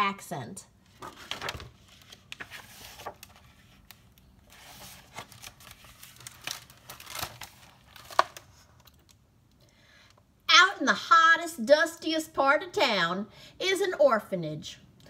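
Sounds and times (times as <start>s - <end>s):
book pages turning: 0.8s - 9.2s
paper rustling and crinkling: 0.9s - 9.2s.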